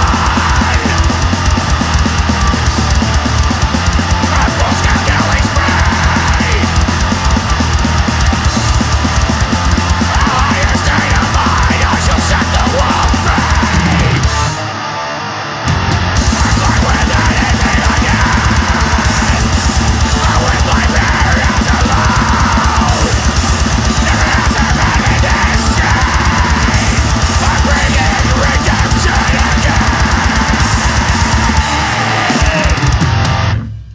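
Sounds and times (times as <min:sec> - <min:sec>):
rapid pounding drums: 0:00.0 - 0:14.6, 0:15.7 - 0:33.6
distorted electric guitars: 0:00.0 - 0:33.9.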